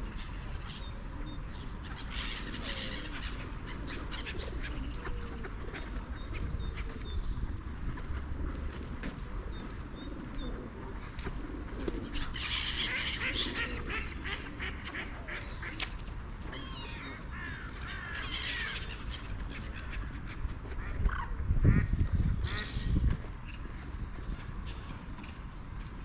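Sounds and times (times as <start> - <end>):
ducks quacking: 12.3 - 15.9, 16.8 - 25.1.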